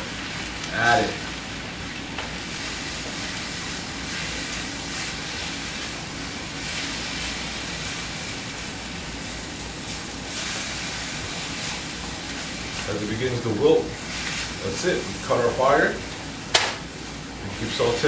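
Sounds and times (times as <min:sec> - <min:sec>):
spinach sizzling in frying pan: 0:00.0 - 0:18.0.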